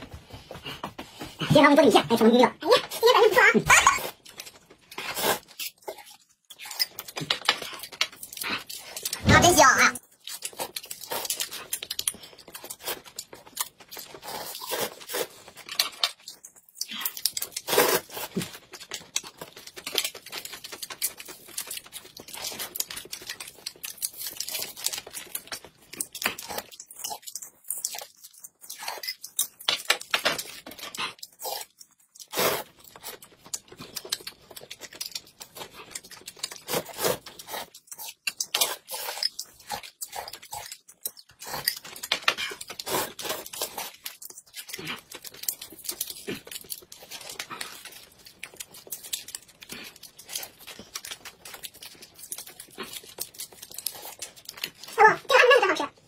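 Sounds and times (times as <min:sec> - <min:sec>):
plastic snack packets crinkling: 0:03.0 - 0:56.0
noodles slurped: 0:04.8 - 0:09.2, 0:14.0 - 0:16.0, 0:16.8 - 0:18.6, 0:30.9 - 0:34.7, 0:35.5 - 0:55.0
mouth chewing: 0:10.2 - 0:55.3.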